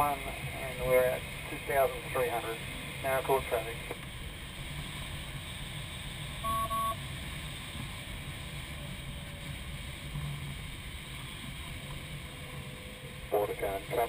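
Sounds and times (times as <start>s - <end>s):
airflow rushing over canopy: 0.0s - 6.4s
short electronic beeps: 6.4s - 7.0s.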